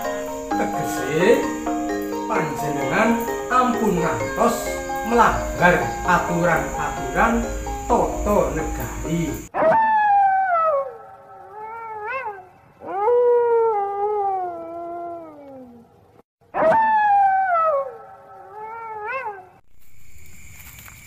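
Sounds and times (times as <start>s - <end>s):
short wavering calls: 0.0s - 9.5s
dog howling: 0.0s - 16.0s.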